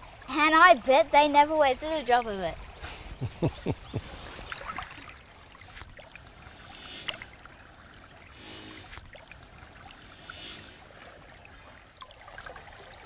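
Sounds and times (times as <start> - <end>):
creek water trickling: 0.0 - 13.0
rushes of water: 0.0 - 13.0
water dripping: 3.2 - 13.0.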